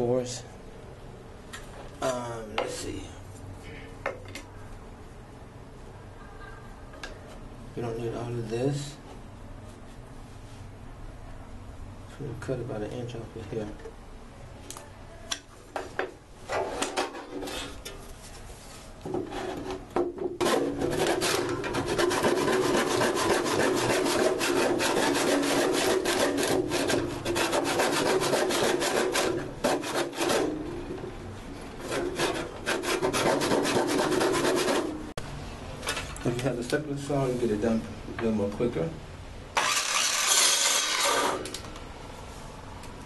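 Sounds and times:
hand saw cutting wood: 20.4s - 30.6s, 31.8s - 35.0s, 39.6s - 41.5s.

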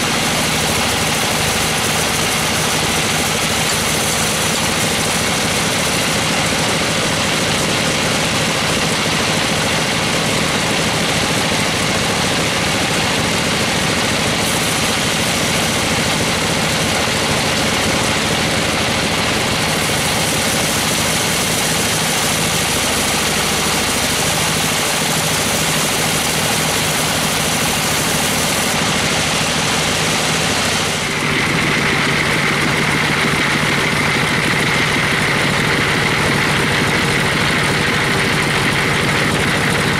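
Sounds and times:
band saw cutting wood: 0.0s - 39.9s
steady high whine: 14.3s - 39.9s.

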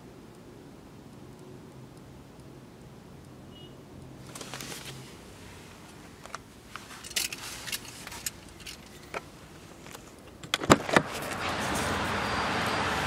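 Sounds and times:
hiss of outside air: 0.0s - 8.6s, 11.1s - 13.0s
car door latch clacks: 10.3s - 11.1s.

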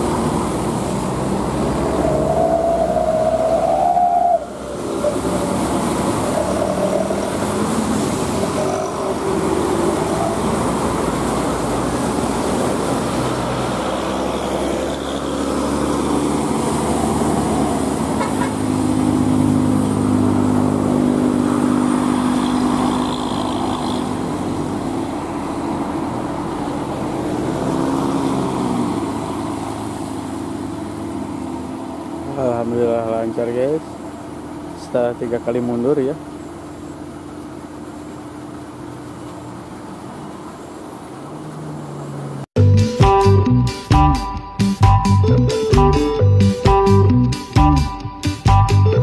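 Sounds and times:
motorcycle passing: 0.0s - 33.8s
cars passing: 0.0s - 49.0s
truck diesel engine droning: 0.0s - 49.0s.

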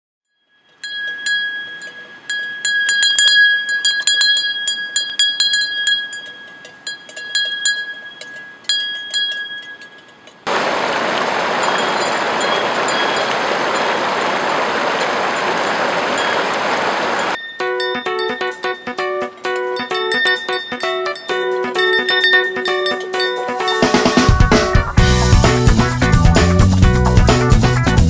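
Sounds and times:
cowbells clanking: 0.4s - 10.5s, 11.6s - 14.0s, 16.1s - 28.0s
whitewater rapids rushing: 10.5s - 17.4s, 22.8s - 25.1s.

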